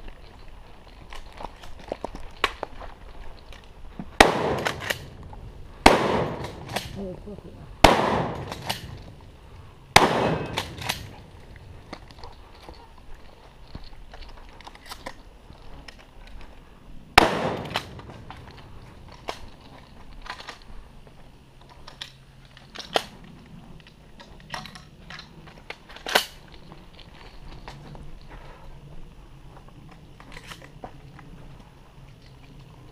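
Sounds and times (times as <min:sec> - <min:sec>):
shotgun firing: 0:04.2 - 0:05.1, 0:05.8 - 0:07.0, 0:07.8 - 0:09.0, 0:10.0 - 0:11.2, 0:17.2 - 0:18.1
weaker bang: 0:09.9 - 0:11.2.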